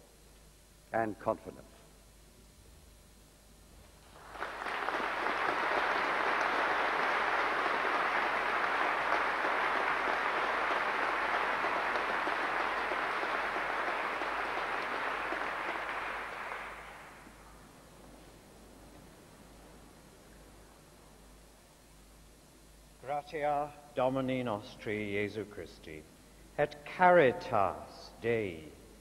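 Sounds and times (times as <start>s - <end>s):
large audience applauding: 4.0s - 17.3s.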